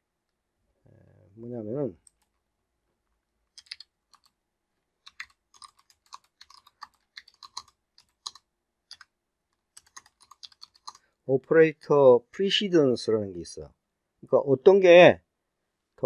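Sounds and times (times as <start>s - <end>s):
keyboard typing clicks: 5.1s - 9.1s, 9.8s - 11.0s.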